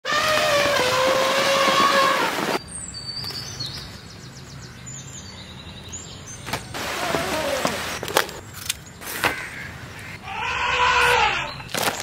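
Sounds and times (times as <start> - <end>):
elephant trumpeting: 0.0 - 2.6, 6.8 - 8.0, 10.1 - 11.6
small birds chirping: 2.2 - 12.0.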